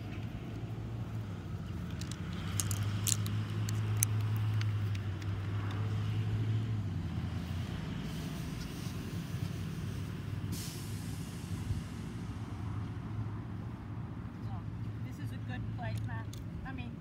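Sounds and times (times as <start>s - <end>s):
bus diesel engine humming: 0.0s - 17.0s
golf clubs clicking: 1.7s - 5.9s.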